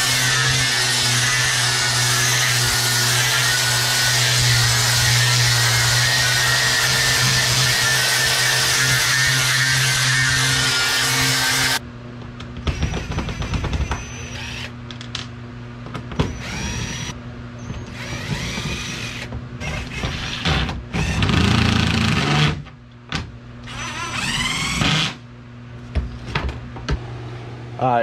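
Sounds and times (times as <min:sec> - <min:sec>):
cordless drill motor whine: 0:12.7 - 0:14.7, 0:16.2 - 0:22.2, 0:23.6 - 0:25.2.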